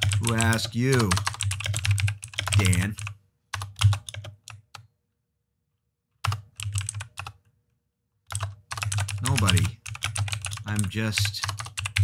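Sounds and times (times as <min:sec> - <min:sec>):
keyboard typing clicks: 0:08.3 - 0:12.0.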